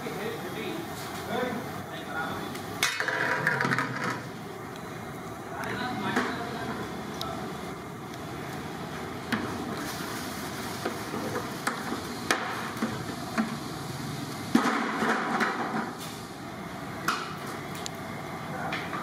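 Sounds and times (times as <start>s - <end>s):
water boiling: 0.0s - 19.0s
wood fires crackling: 4.2s - 14.5s.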